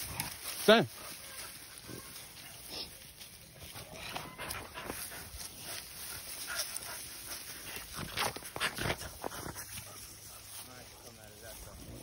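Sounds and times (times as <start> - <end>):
undergrowth crackling: 0.0 - 12.0
dogs whimpering and whining: 3.8 - 5.2.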